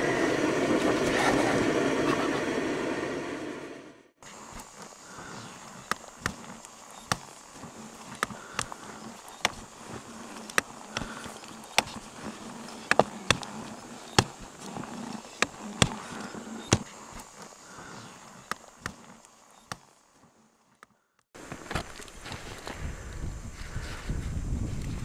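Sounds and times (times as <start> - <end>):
faint steady hum: 0.0 - 25.0
footsteps crunching on frozen snow: 4.2 - 20.4, 21.4 - 24.2.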